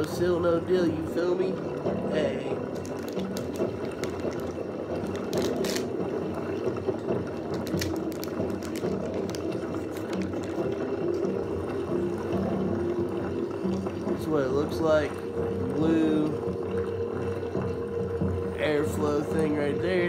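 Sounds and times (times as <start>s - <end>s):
plastic packaging crinkling: 2.6s - 6.6s, 7.4s - 11.3s.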